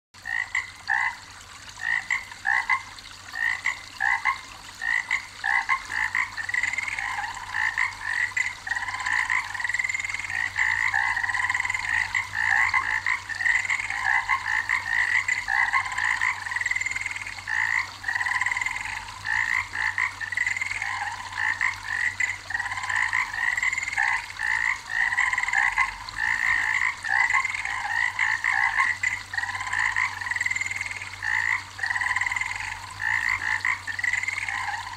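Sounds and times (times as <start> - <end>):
frogs croaking chorus: 0.2 - 34.9.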